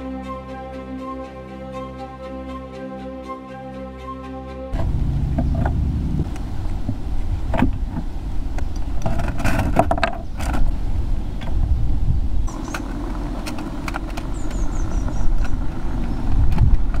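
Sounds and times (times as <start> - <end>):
steady low rumble: 4.7 - 17.0.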